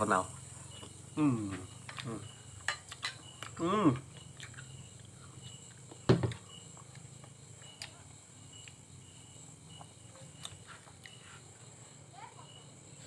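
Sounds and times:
night insects chirring: 0.0s - 13.0s.

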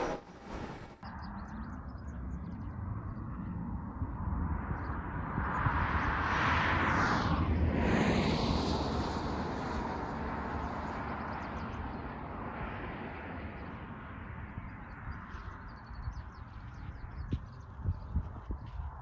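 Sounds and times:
road vehicle passing by: 0.0s - 1.0s, 5.6s - 16.0s.

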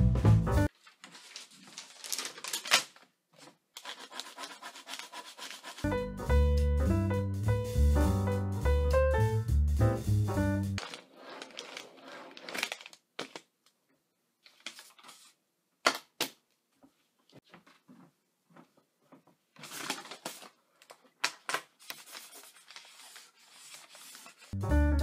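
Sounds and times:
paper rustling and crinkling: 0.7s - 5.8s, 10.8s - 13.5s, 14.4s - 15.4s, 19.6s - 24.6s.

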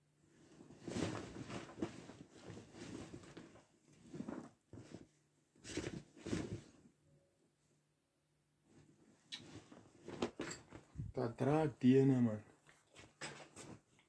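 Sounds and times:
rustling and knocking of handled objects: 0.3s - 6.9s, 8.7s - 11.3s, 12.4s - 14.0s.

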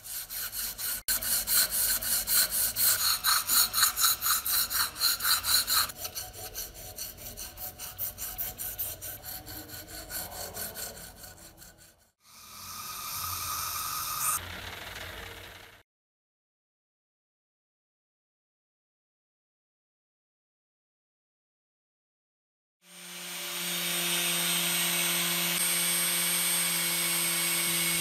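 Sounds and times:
steady rubbing noise: 0.0s - 12.2s
hand tool scraping a part: 0.0s - 14.4s.

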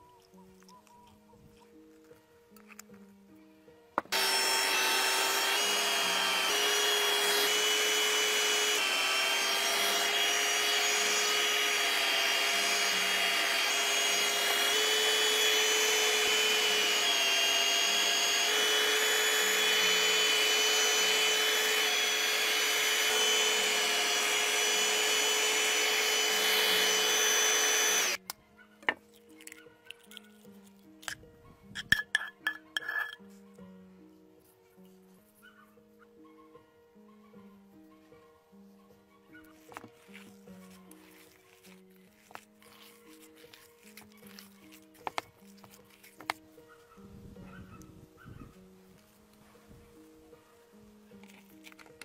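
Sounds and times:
electric meat grinder motor whine: 4.0s - 28.2s.

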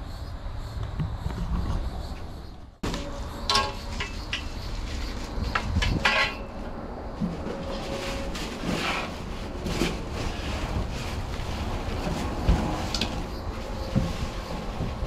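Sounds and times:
wind rumble on microphone: 0.0s - 3.5s, 4.2s - 15.0s
packing paper rustling and crinkling: 7.2s - 15.0s.

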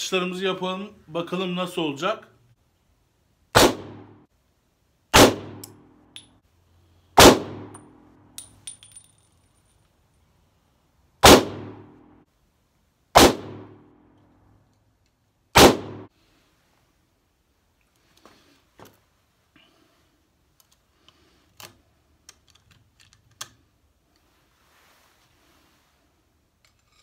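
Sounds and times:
pistol shots: 3.6s - 4.2s, 5.1s - 5.8s, 7.2s - 7.8s, 11.2s - 11.9s, 13.2s - 13.8s, 15.6s - 16.1s.

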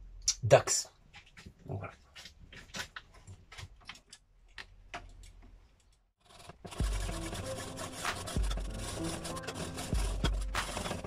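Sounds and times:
hacksaw sawing through metal: 6.2s - 11.0s.

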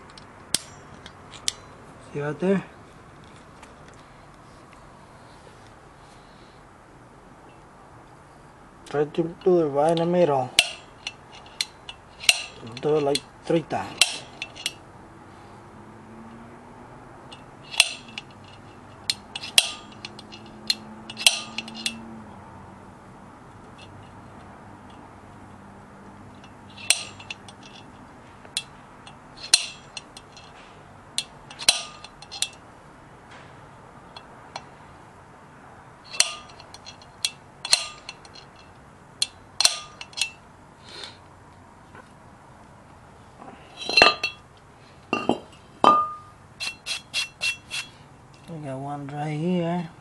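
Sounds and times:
center punch clicking on steel: 9.9s - 12.6s, 14.0s - 14.6s, 17.3s - 18.3s, 19.1s - 22.0s, 29.4s - 30.3s, 36.1s - 38.6s, 39.2s - 40.3s.

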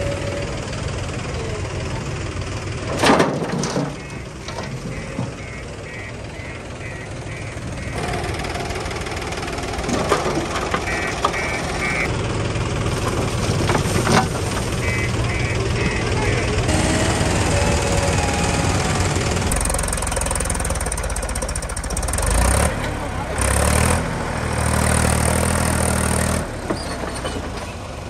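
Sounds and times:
diesel engine running: 0.0s - 28.0s
reversing alarm beeping: 3.9s - 8.3s, 10.8s - 12.1s, 14.8s - 19.7s.

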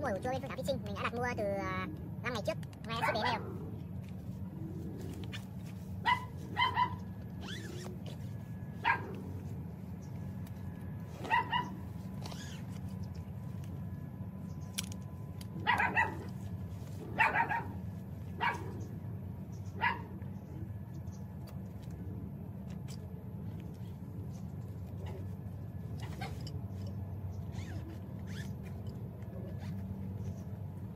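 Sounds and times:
steady low hum: 0.0s - 30.9s
dog barking: 3.0s - 3.5s, 6.0s - 7.0s, 8.8s - 9.2s, 11.2s - 11.8s, 15.6s - 16.3s, 17.1s - 17.8s, 18.4s - 18.9s, 19.8s - 20.1s.

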